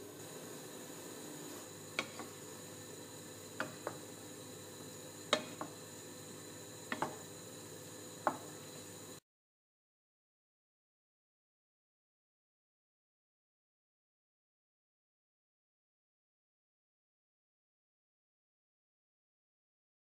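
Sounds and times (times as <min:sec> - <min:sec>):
gravy simmering with pops: 0:00.1 - 0:09.2.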